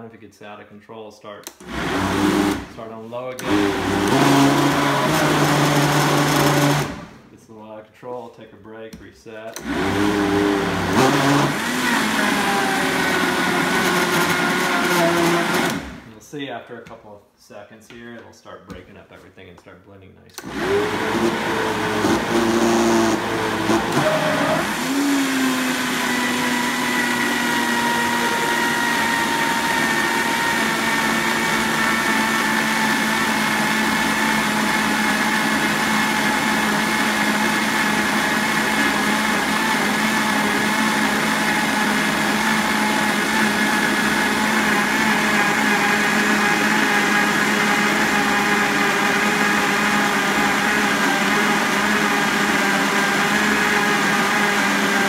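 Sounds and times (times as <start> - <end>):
blender motor running: 1.5 - 2.7, 3.4 - 7.2, 9.6 - 16.1, 20.4 - 55.0.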